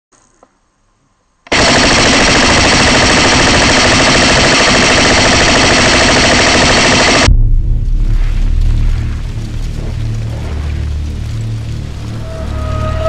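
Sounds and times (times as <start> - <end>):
airsoft rifle full-auto burst: 1.5 - 7.3.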